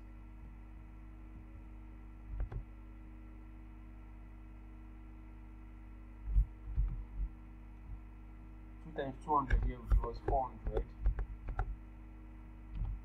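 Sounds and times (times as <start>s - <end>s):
electrical hum: 0.0s - 13.0s
soft low thumps: 2.3s - 2.7s, 6.2s - 8.1s, 9.4s - 11.8s, 12.7s - 13.0s.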